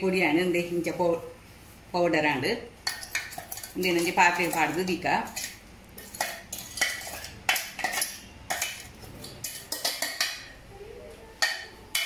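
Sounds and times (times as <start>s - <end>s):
metal spoon scraping steel jar: 2.9s - 10.2s.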